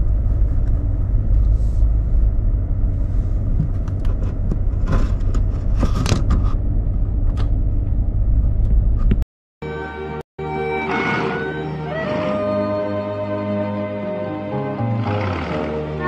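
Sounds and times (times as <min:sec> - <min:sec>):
road surface clicks and crackles: 0:00.0 - 0:09.2
vehicle engine and tyres rumbling: 0:00.0 - 0:09.2.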